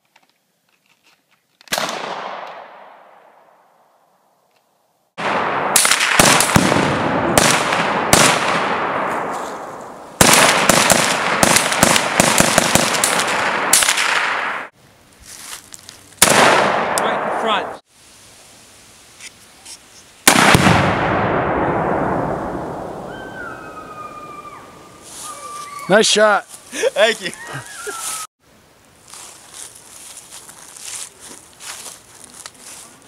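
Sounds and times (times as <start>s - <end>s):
gunshots with rolling echo: 1.7s - 3.9s, 5.2s - 14.7s, 16.2s - 17.8s, 20.2s - 23.1s
exploding target boom: 5.2s - 9.5s, 20.3s - 23.1s.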